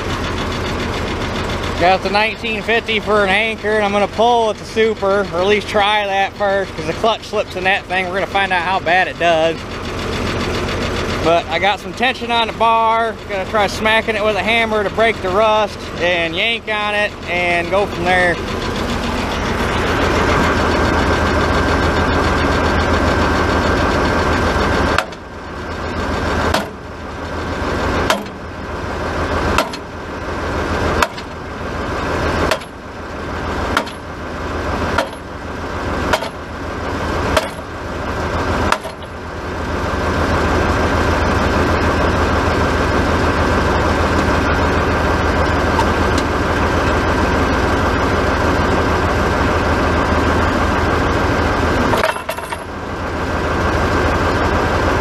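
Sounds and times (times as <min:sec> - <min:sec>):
tractor engine idling: 0:00.0 - 0:55.0
sledgehammer striking steel pipe: 0:26.5 - 0:26.8, 0:28.0 - 0:28.4, 0:29.6 - 0:29.9, 0:32.5 - 0:32.8, 0:33.7 - 0:34.1, 0:36.1 - 0:36.4, 0:37.3 - 0:37.7, 0:38.7 - 0:39.1.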